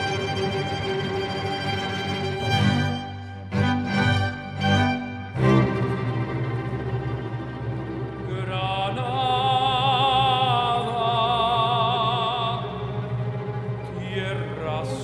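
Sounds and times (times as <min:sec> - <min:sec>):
string ensemble: 0:00.0 - 0:15.0
operatic tenor singing: 0:08.2 - 0:15.0.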